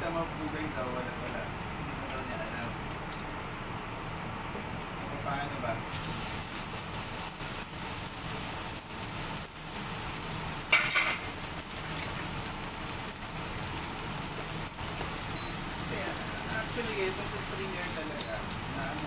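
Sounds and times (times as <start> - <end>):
steak sizzling in a pan: 5.9 - 19.0.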